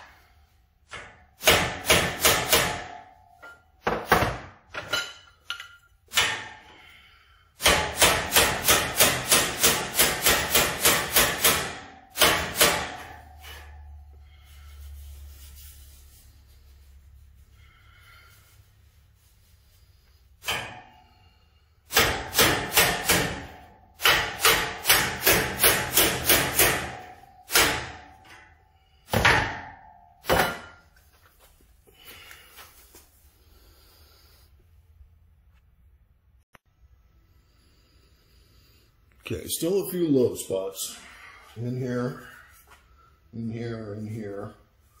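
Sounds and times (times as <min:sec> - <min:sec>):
hammer tapping sheet metal: 0:00.8 - 0:06.7, 0:07.6 - 0:13.9, 0:21.9 - 0:31.0.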